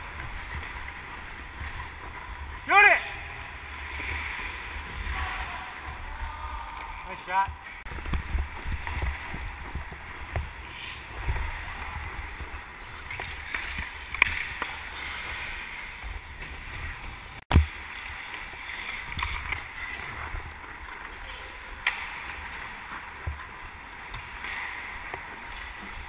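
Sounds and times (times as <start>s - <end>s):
ice skate blades scraping: 12.5s - 16.7s.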